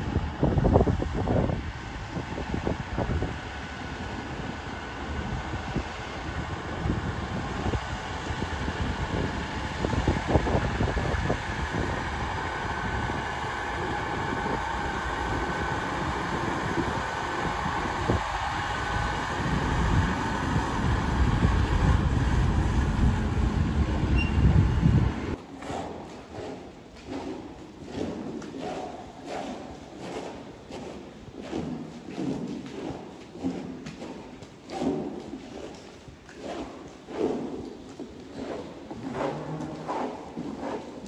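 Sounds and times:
tractor engine rumble: 3.2 - 25.4.

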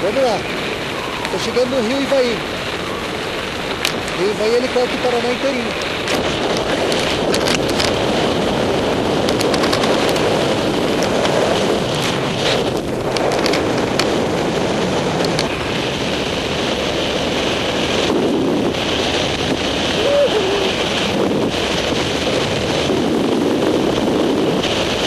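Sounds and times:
wind rushing over microphone: 0.0 - 25.0
small clicks: 5.8 - 8.0, 9.2 - 10.3, 12.0 - 14.1.

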